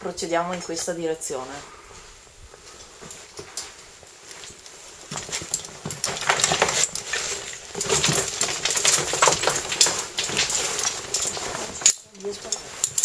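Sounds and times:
gear scraping against rock: 4.2s - 13.0s.

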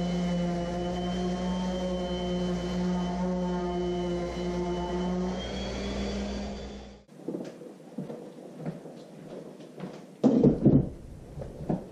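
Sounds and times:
electric sander humming: 0.0s - 6.9s.

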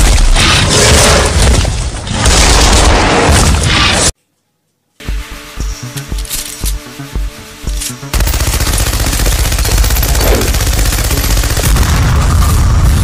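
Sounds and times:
music with steady beat: 5.0s - 8.2s.

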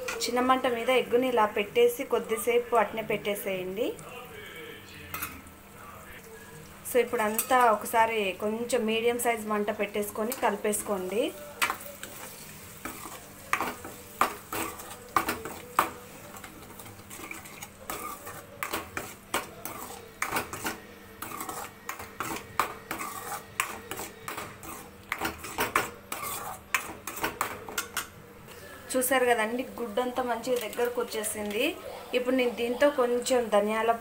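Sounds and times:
metal spatula scraping a wok: 10.2s - 28.1s.

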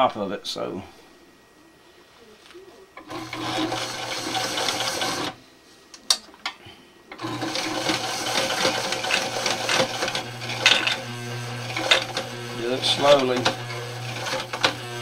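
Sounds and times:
sewing machine running: 3.0s - 5.4s, 7.1s - 15.0s.

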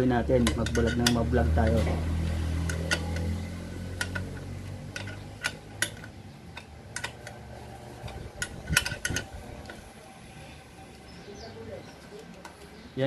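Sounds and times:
metallic clicks and taps: 0.4s - 7.4s.

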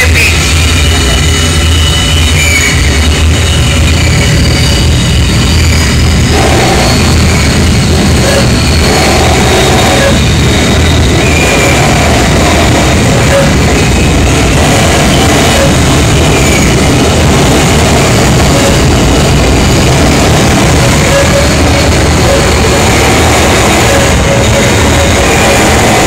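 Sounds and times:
high whistling tones: 0.0s - 12.3s
pulsing mid-pitched tone: 0.0s - 26.0s
heavy low buzzing drone: 6.2s - 26.0s.

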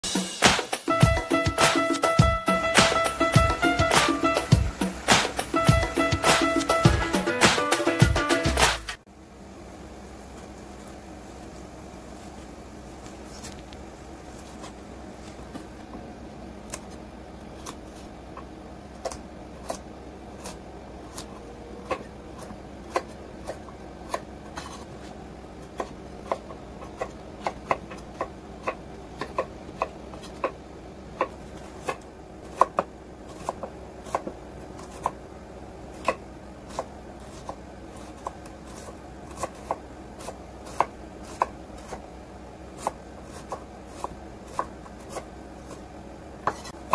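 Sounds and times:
knife chopping on wooden board: 20.4s - 24.9s, 25.7s - 30.6s, 31.2s - 35.2s, 36.0s - 42.0s, 42.8s - 46.9s.

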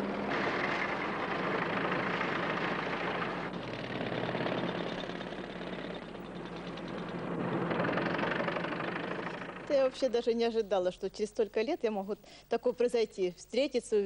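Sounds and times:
combine harvester engine running: 0.0s - 10.1s.

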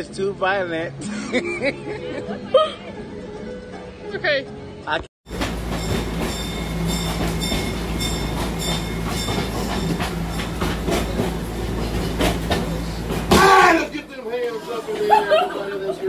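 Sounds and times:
clickety-clack of train wheels: 5.3s - 13.6s
knocks in train coach: 5.3s - 13.8s
train coach rumble: 5.3s - 14.2s.

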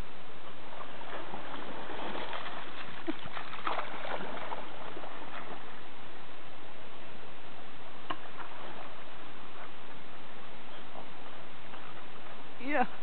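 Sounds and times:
dog splashing through water: 0.8s - 5.8s.

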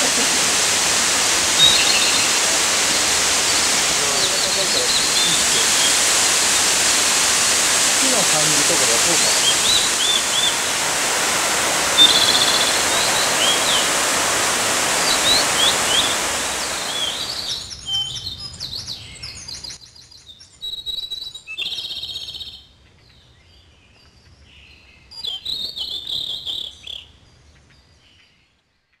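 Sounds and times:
rushing waterfall: 0.0s - 17.7s
small birds chirping: 0.0s - 28.5s.

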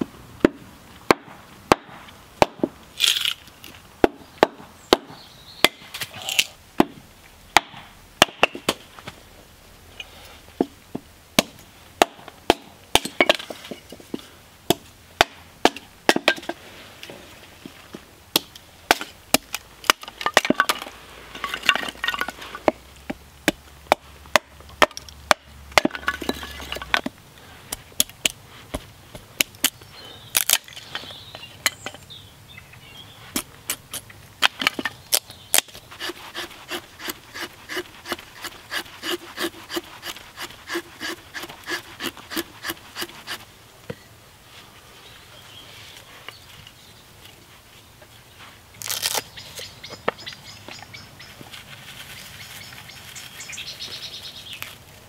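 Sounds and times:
wood cracking and splintering: 30.4s - 30.9s, 48.8s - 49.3s.

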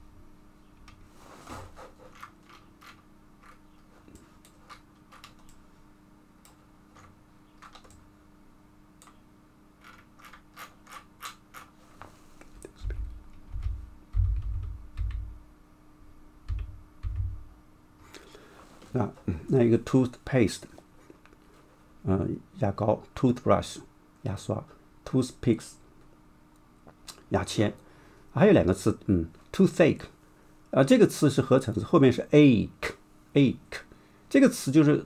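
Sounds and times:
faint steady hum: 0.0s - 35.0s
computer mouse clicking: 2.1s - 3.6s, 4.4s - 5.6s, 6.4s - 8.0s
dull low thumps: 12.8s - 15.4s, 16.5s - 17.5s.

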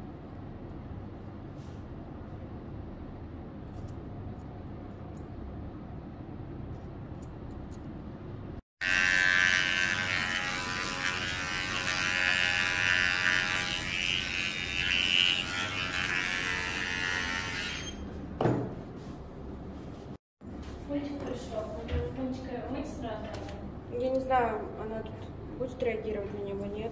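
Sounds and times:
pet hair clipper buzzing: 8.8s - 18.0s.

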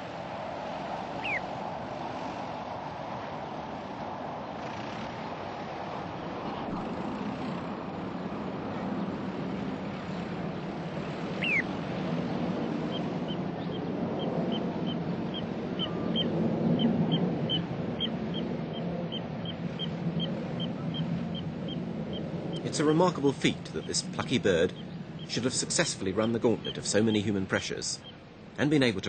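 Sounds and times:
distant engines rumbling: 0.0s - 29.0s
high piping bird calls: 1.2s - 1.5s, 11.4s - 11.7s, 23.7s - 28.2s.

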